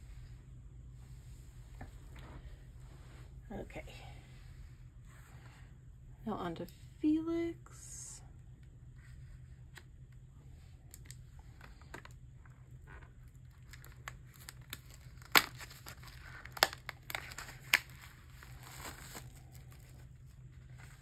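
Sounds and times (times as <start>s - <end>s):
packaging crinkling and tearing: 10.9s - 21.0s.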